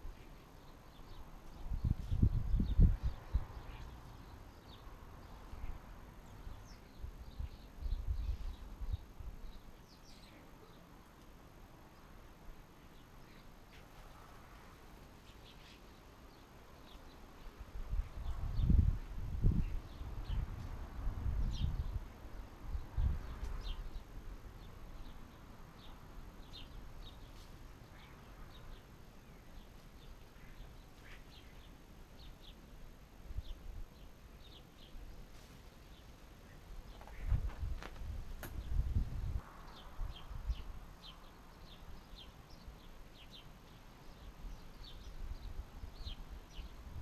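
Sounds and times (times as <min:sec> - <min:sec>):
birds chirping: 0:00.0 - 0:11.2, 0:22.7 - 0:32.7, 0:33.4 - 0:46.8
wind rumble on microphone: 0:01.1 - 0:09.7, 0:17.5 - 0:27.2, 0:36.8 - 0:42.6, 0:44.5 - 0:47.0
wind buffeting microphone: 0:01.5 - 0:03.7, 0:17.6 - 0:24.1, 0:36.8 - 0:41.1.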